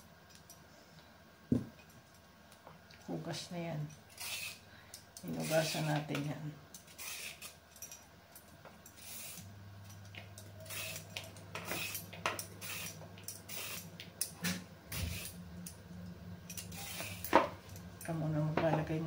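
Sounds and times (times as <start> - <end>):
peeler scraping carrot: 6.9 - 7.6, 10.6 - 13.9, 16.6 - 17.3.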